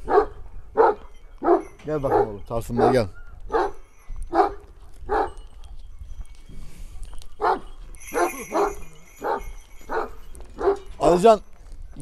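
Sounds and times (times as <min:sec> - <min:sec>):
dog barking deeply: 0:00.0 - 0:03.8.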